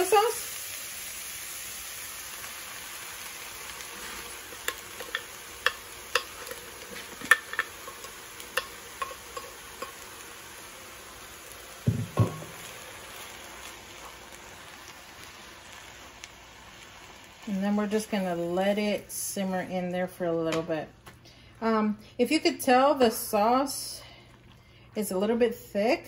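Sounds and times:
chicken sizzling in a pan: 0.0 - 19.9
dull knocks: 11.9 - 12.5.

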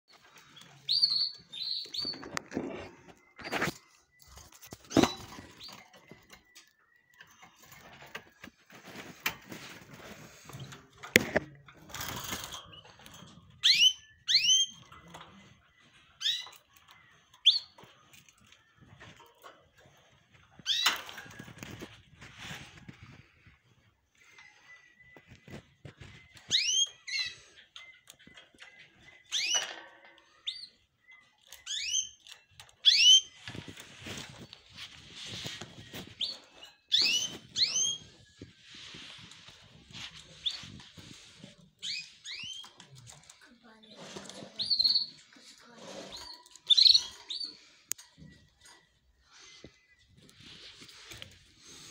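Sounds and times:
bird chirp: 0.0 - 8.5, 40.2 - 51.9
canaries chirping: 0.0 - 51.9
canary rattling trill: 0.1 - 22.7, 24.3 - 51.9
birds moving in wire cage: 0.1 - 51.9.

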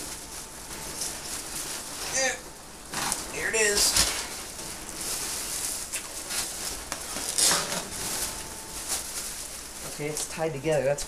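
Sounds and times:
foam packing peanuts rustling: 0.0 - 11.0
plastic bag crinkling: 0.0 - 11.0.

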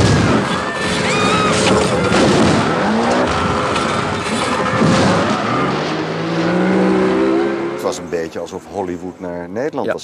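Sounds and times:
crashes: 0.0 - 7.4.

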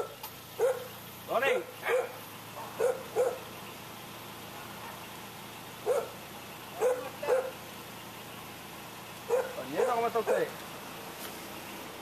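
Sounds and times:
dog barking: 0.0 - 0.9, 1.5 - 3.5, 4.6 - 5.1, 5.8 - 6.2, 6.8 - 7.6, 9.3 - 10.5.

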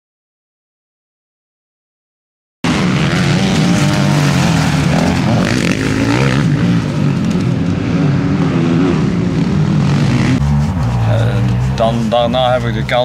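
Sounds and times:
motocross bike engine revving: 2.6 - 13.0.

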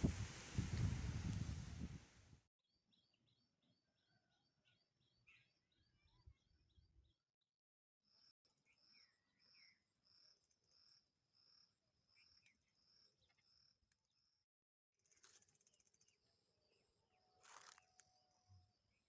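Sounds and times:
short rush of noise: 0.0 - 2.2.

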